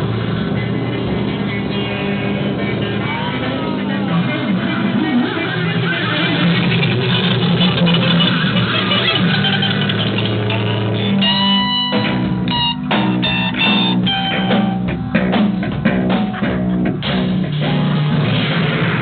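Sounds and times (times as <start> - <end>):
bass guitar: 0.0 - 19.0
electric guitar: 0.0 - 19.0
drum kit playing: 6.6 - 19.0.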